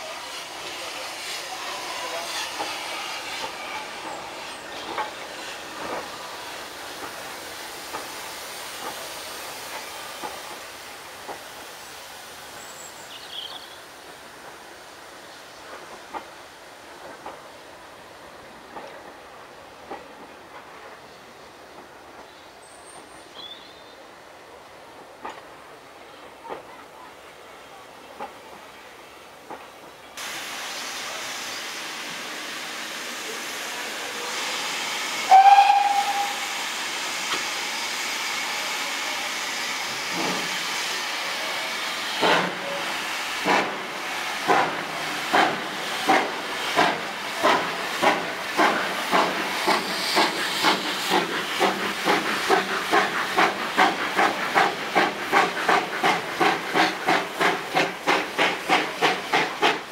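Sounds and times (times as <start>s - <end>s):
steam hissing: 0.0s - 22.2s, 30.2s - 59.9s
steam whistle: 35.2s - 36.6s.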